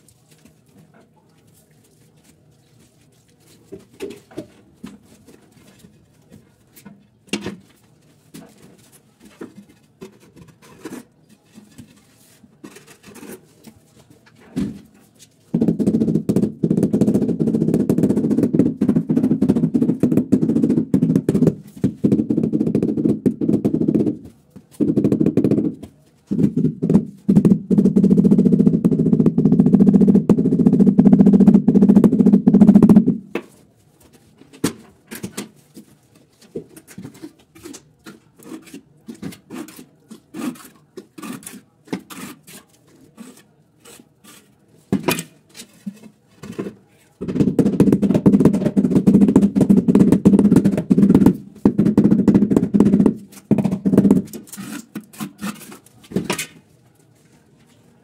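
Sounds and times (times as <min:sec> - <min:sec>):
fast knocking on ceramic tile: 0:15.5 - 0:33.3, 0:47.2 - 0:54.4.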